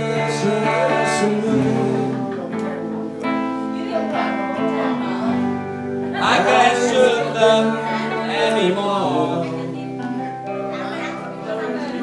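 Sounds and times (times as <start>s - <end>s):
person singing: 0.0s - 2.9s, 5.0s - 10.9s
strummed guitar chords: 0.0s - 12.0s.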